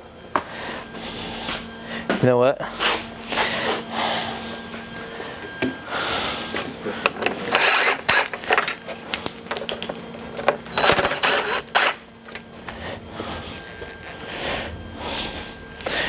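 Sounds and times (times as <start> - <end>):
plastic parts clicking and knocking: 8.1 - 11.6.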